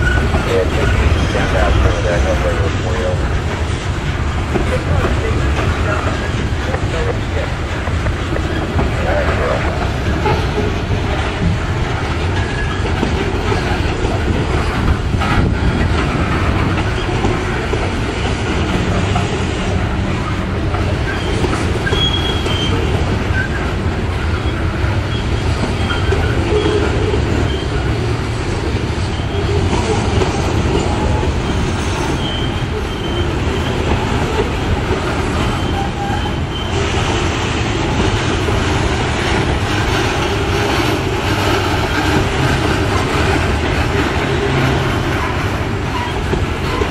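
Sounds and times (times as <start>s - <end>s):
train wheels rumbling on rails: 0.0s - 46.9s
high wheel squeals: 21.1s - 23.6s, 24.2s - 27.9s, 29.1s - 34.1s, 35.4s - 37.0s, 44.2s - 46.9s.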